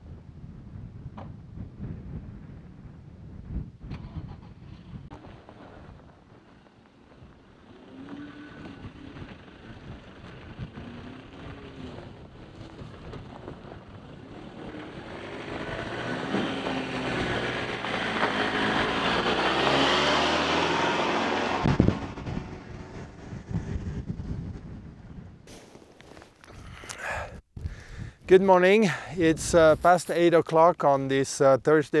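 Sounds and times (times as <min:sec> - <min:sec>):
diesel pickup engine passing: 0:05.1 - 0:25.2.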